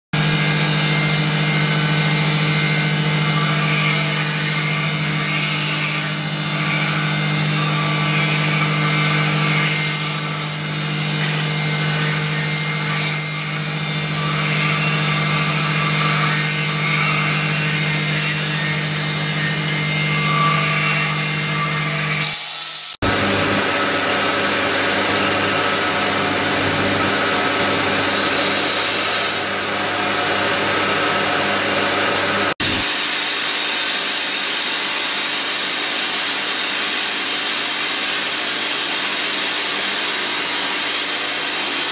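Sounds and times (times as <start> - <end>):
rotary tool motor hum: 0.4 - 23.0.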